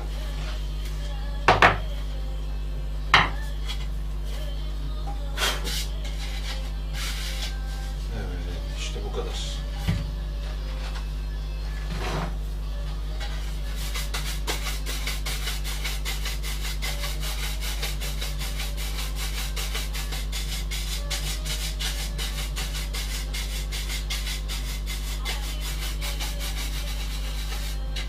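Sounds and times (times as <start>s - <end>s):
steady low hum: 0.0s - 28.0s
brush scrubbing wood: 13.4s - 28.0s.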